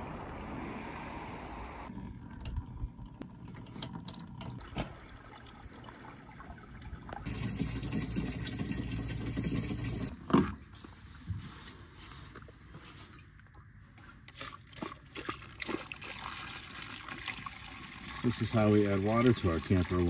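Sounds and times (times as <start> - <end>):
water running into plastic jug: 2.0 - 10.1, 14.3 - 20.0.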